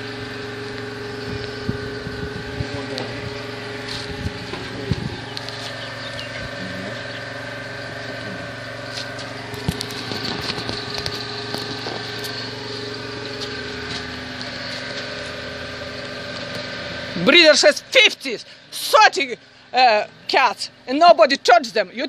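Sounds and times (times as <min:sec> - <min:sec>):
motor humming: 0:00.0 - 0:22.0
sharp clicks and crackles: 0:09.5 - 0:12.3.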